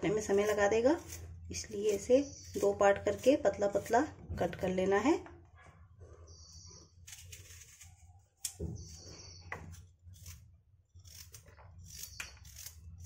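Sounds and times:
knife cutting raw carrot: 0.1s - 4.0s.

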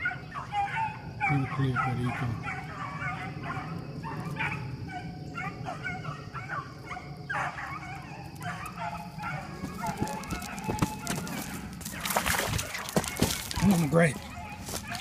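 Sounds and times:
hounds baying and yelping: 0.0s - 15.0s.

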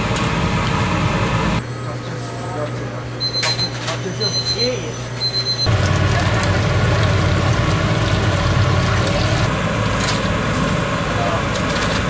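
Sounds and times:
hot oil sizzling and bubbling: 5.7s - 10.5s.

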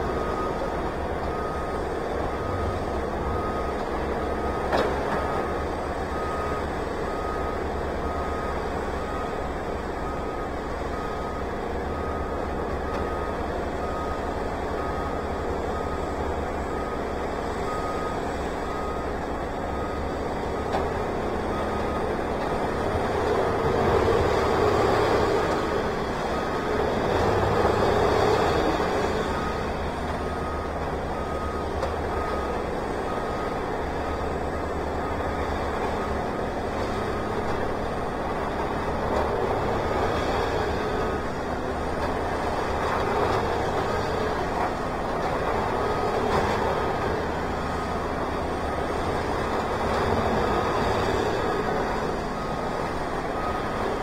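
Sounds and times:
engine rumbling: 0.0s - 54.0s
backup alarm beeping: 1.2s - 22.3s, 27.4s - 36.2s.

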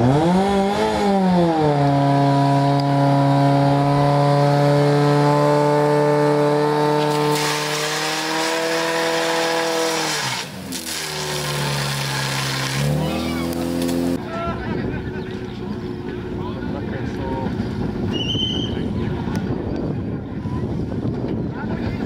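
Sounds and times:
pump engine at high revs: 0.0s - 14.2s.

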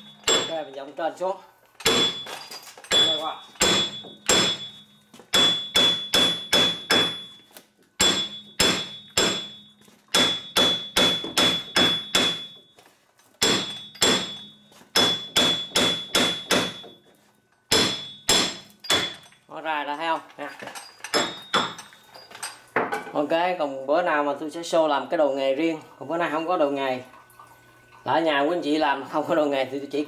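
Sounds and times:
hammer striking metal: 0.0s - 0.7s, 1.8s - 7.4s, 8.0s - 12.6s, 13.4s - 17.0s, 17.7s - 19.4s, 21.1s - 21.9s.

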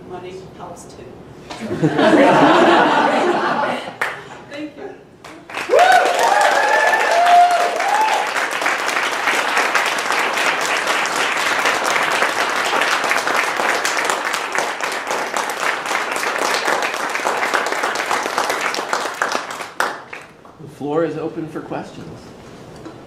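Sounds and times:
audience applauding: 5.3s - 20.4s
voices whooping: 5.7s - 8.4s.

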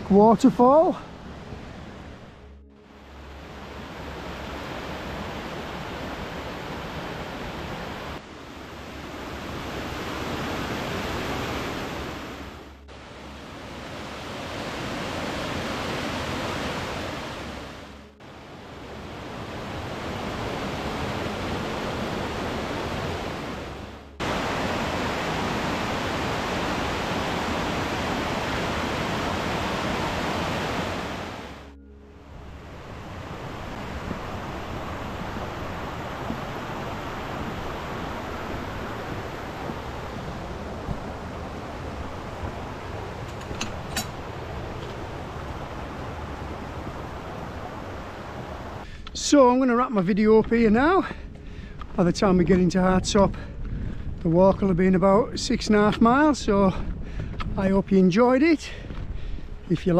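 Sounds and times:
waterfall rushing over rocks: 9.2s - 17.8s, 18.4s - 31.7s, 33.2s - 48.8s.

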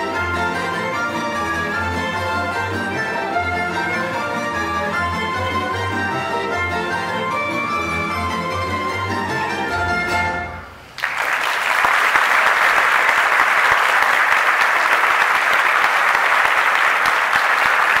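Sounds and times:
audience applause: 10.9s - 18.0s.

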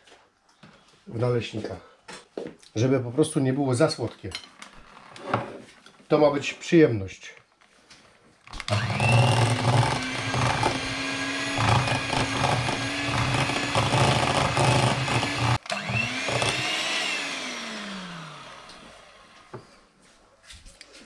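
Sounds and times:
hand blender running: 8.6s - 19.6s.

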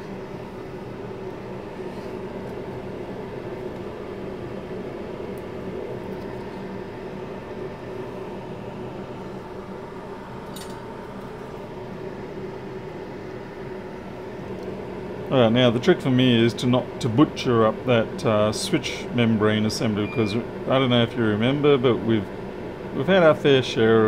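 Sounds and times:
fan humming: 0.0s - 24.0s.

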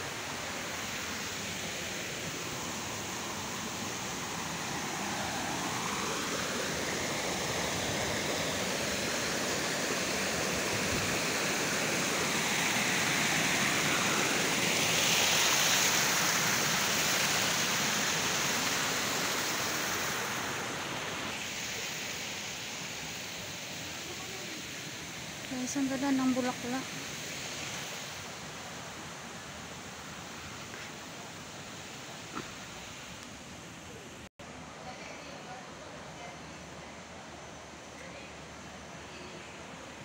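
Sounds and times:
waterfall splashing over rocks: 5.7s - 25.2s.

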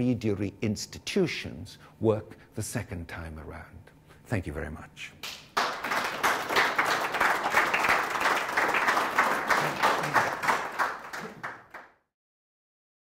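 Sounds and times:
audience applauding: 5.3s - 11.9s.

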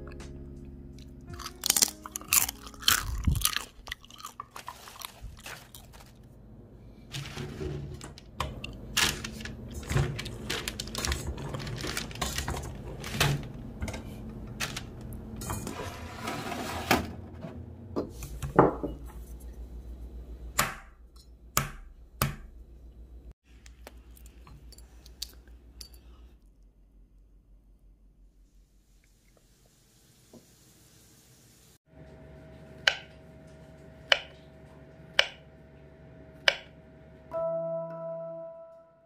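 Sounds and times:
eggshell crackling: 1.3s - 6.3s.

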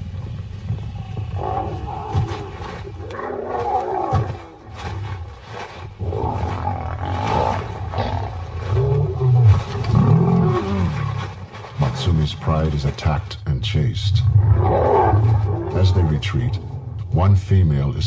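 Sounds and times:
lionesses roaring and snarling: 0.8s - 12.8s, 14.2s - 17.2s.

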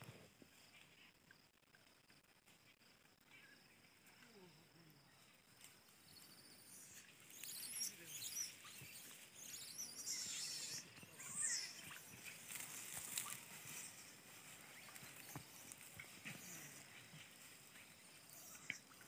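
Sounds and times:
monkeys chirping and squeaking: 6.6s - 17.4s, 18.2s - 19.0s
rustling in dry grass: 11.3s - 19.0s.

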